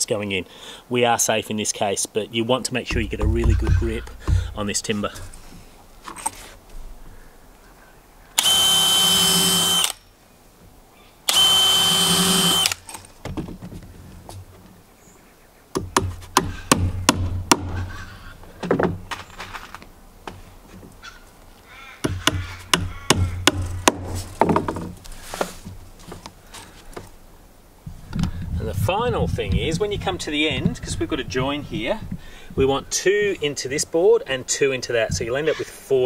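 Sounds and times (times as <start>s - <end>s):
hammer striking nails: 2.9s - 4.8s, 22.1s - 24.1s
cordless drill whining: 8.4s - 10.0s, 11.3s - 12.9s.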